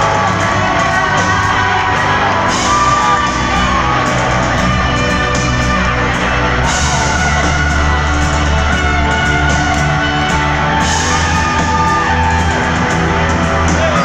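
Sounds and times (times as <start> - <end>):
live rock band: 0.0 - 14.0.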